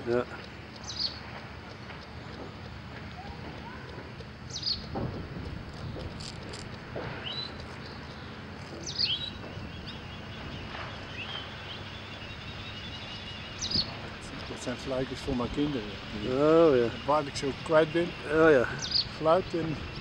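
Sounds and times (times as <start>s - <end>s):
distant aircraft engines droning: 0.0s - 20.0s
thin bird chirps: 7.2s - 14.0s.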